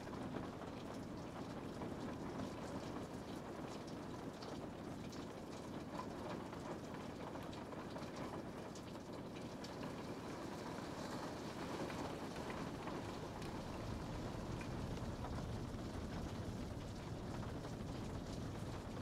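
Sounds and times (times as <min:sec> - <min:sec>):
steady rain falling: 0:00.0 - 0:19.0
raindrops ticking: 0:09.0 - 0:19.0.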